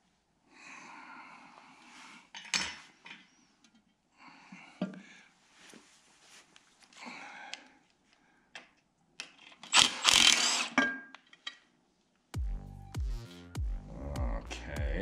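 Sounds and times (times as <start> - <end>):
electronic music with bass beat: 12.4 - 15.0.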